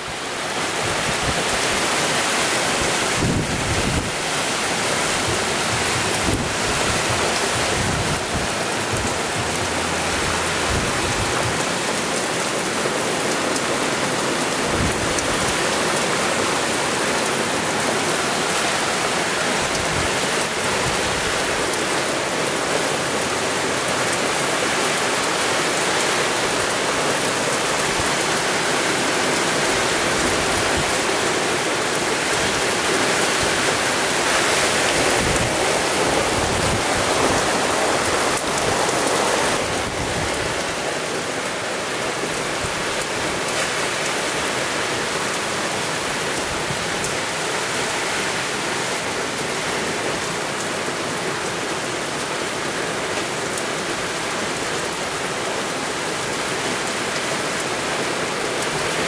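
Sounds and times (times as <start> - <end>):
heavy rain pouring: 0.0 - 59.0
wind gusts buffeting microphone: 0.8 - 12.8, 23.1 - 41.0.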